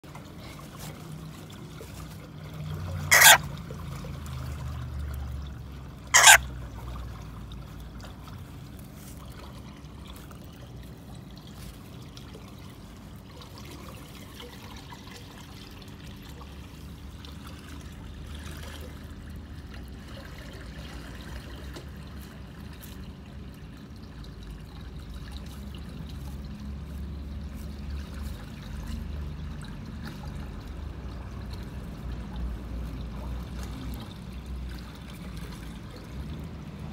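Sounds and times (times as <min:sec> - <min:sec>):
parrot shrill screech: 0:03.1 - 0:03.4, 0:06.1 - 0:06.4.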